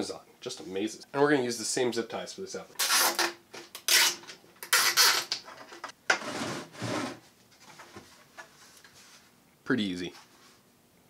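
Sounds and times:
zip ties pulled tight: 2.8s - 5.4s.

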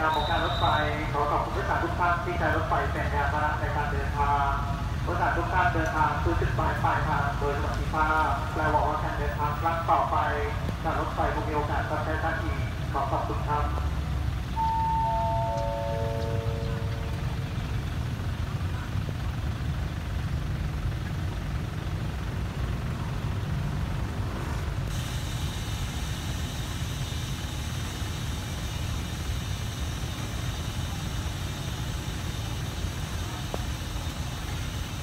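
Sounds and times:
train diesel engine rumbling: 0.0s - 35.0s
steady hiss: 24.8s - 35.0s.

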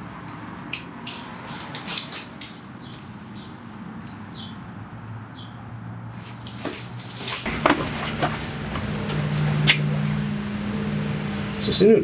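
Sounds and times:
outdoor background hum: 0.0s - 12.0s
small bird chirping: 2.5s - 4.7s.

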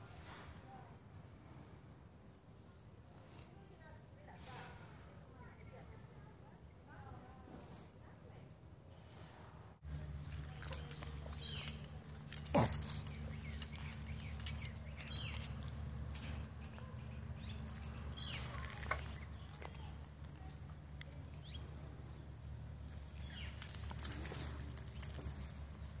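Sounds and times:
low steady rumble: 9.0s - 26.0s
puppy chewing leash on concrete: 9.8s - 26.0s.

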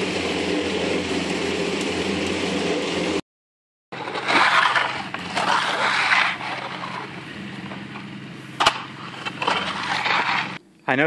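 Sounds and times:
low engine hum: 0.0s - 3.2s, 4.0s - 10.6s
float scraping wet concrete: 3.9s - 10.6s.

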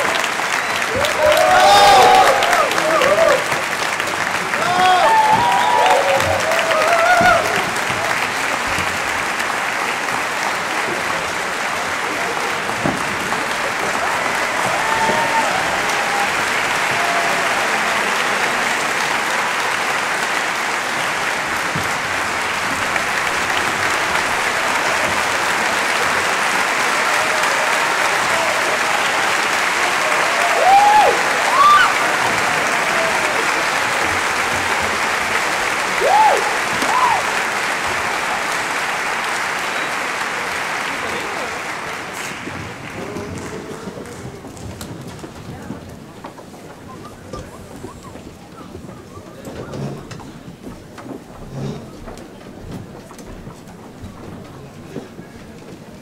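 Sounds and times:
cheering shouts: 0.0s - 8.4s, 12.0s - 20.5s, 23.0s - 42.1s
audience applauding: 0.0s - 56.0s.

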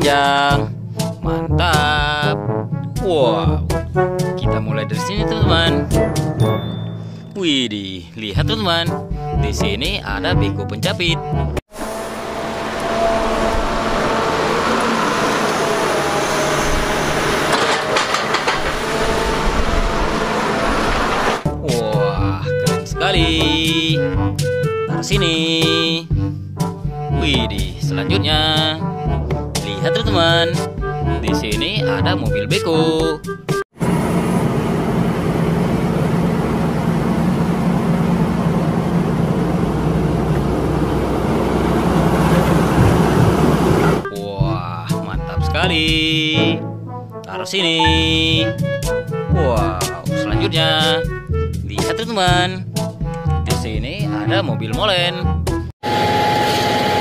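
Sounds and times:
excavator diesel engine and hydraulics: 11.7s - 21.5s, 33.8s - 44.1s, 55.8s - 57.0s
excavator digging rock: 17.0s - 21.4s.

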